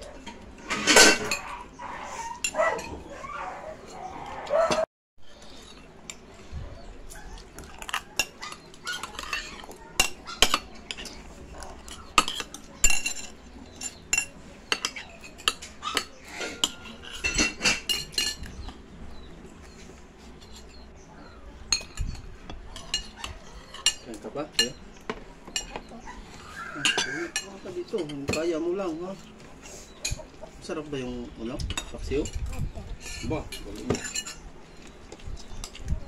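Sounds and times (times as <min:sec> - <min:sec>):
cutlery clinking on ceramic plates: 0:00.2 - 0:01.5, 0:07.7 - 0:18.6, 0:21.7 - 0:24.8, 0:26.8 - 0:28.6, 0:31.6 - 0:34.4.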